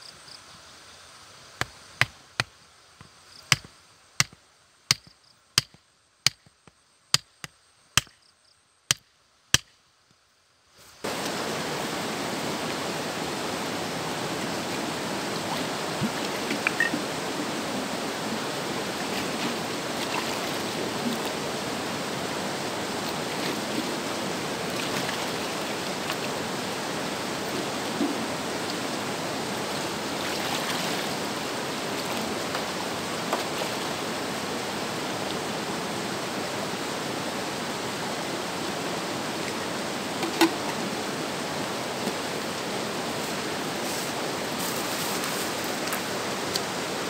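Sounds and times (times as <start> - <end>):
hatchet pounding wooden stake: 3.5 - 8.2, 8.9 - 9.8
river rushing over rocks: 11.0 - 47.0.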